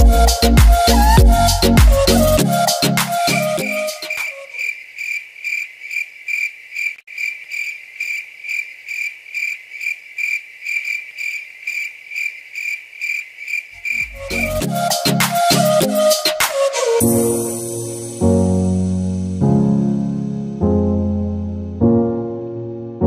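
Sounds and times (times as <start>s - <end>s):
cricket chirping: 3.6s - 14.6s.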